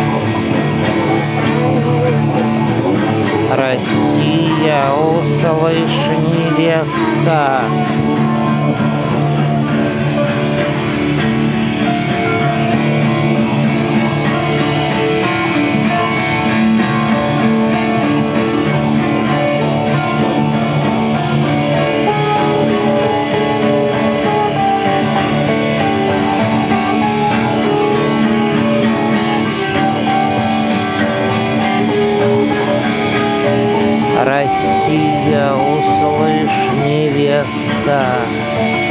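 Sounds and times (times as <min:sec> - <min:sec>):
acoustic guitar strummed: 0:00.0 - 0:38.9
electric guitar: 0:00.0 - 0:38.9.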